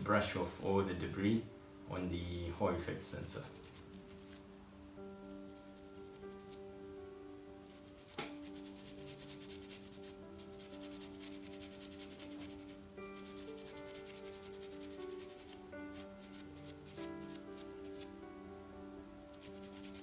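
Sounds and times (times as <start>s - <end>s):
soft background music: 0.0s - 20.0s
toothbrush scrubbing a circuit board: 0.2s - 0.8s, 2.2s - 4.4s, 5.2s - 6.6s, 7.7s - 18.2s, 19.3s - 20.0s.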